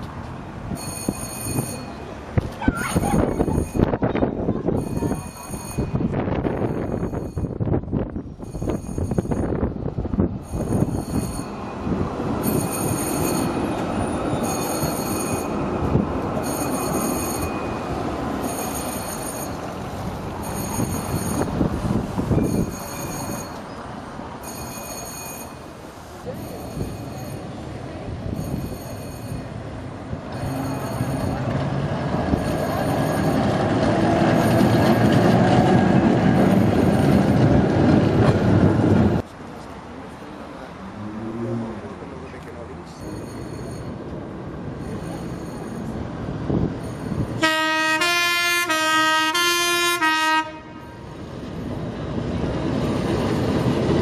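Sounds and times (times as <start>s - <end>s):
tram wheels rumbling on rail: 0.0s - 54.0s
high ringing warning tone: 0.7s - 2.1s, 2.8s - 4.1s, 4.7s - 7.7s, 8.4s - 9.7s, 10.4s - 15.7s, 16.4s - 19.8s, 20.4s - 21.6s, 22.3s - 23.8s, 24.4s - 25.7s, 26.3s - 27.6s, 28.3s - 29.6s, 30.3s - 31.6s, 32.3s - 33.6s, 42.9s - 44.1s, 44.8s - 46.1s, 46.8s - 47.4s.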